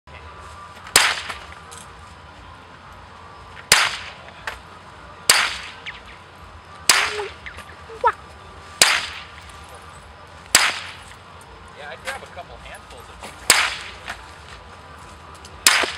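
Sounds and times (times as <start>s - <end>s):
suppressed pistol shots: 0.9s - 1.4s, 3.7s - 4.2s, 5.3s - 6.0s, 6.9s - 7.6s, 10.5s - 11.0s, 13.5s - 14.1s, 15.6s - 15.9s.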